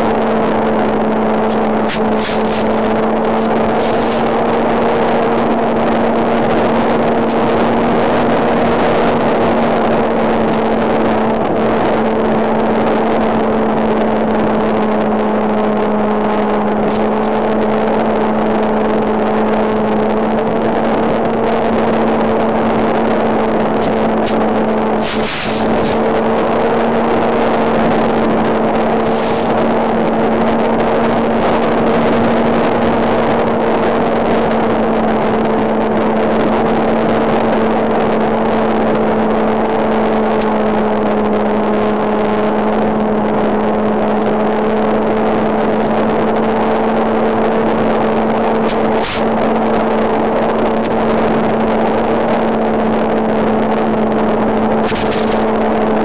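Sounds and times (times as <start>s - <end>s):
model airplane engine drone: 0.0s - 56.0s
brief crackles: 1.4s - 4.5s, 23.8s - 26.6s, 48.6s - 49.5s, 54.7s - 55.5s.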